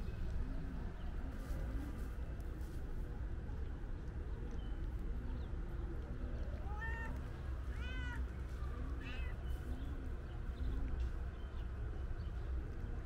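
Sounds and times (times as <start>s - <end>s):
cat meowing: 6.6s - 8.2s.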